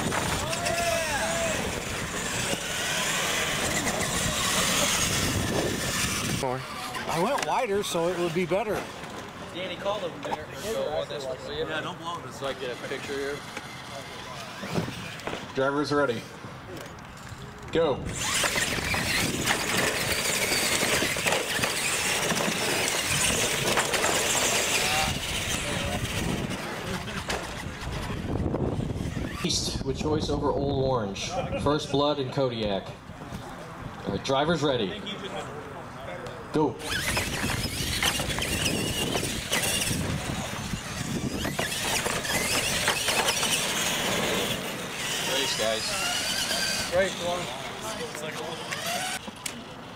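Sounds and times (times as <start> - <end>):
tyre noise on concrete: 0.0 - 7.5, 36.8 - 47.4
whine of motors and gears: 0.0 - 8.2, 12.5 - 15.4, 18.0 - 29.6, 36.8 - 49.9.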